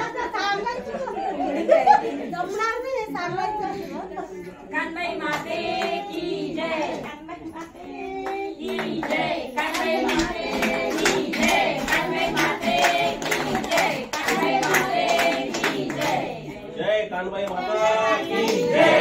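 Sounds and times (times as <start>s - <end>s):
people singing devotional song: 0.0s - 19.0s
rhythmic hand clapping: 5.1s - 16.6s, 17.4s - 19.0s.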